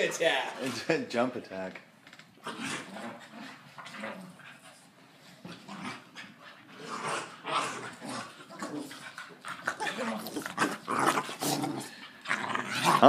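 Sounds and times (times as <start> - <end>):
dogs panting and breathing: 3.0 - 6.9, 8.4 - 12.4.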